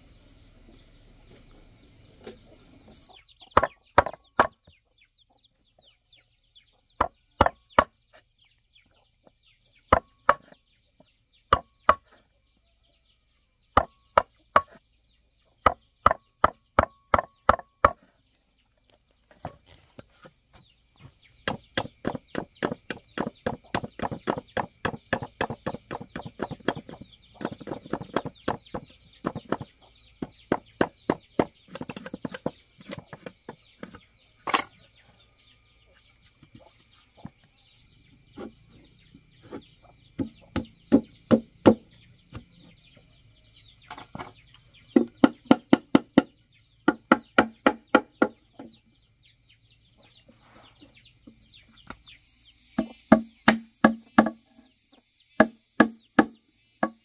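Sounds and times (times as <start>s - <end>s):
faint bird chirps: 0.0s - 57.0s
sharp knocks: 52.8s - 54.4s.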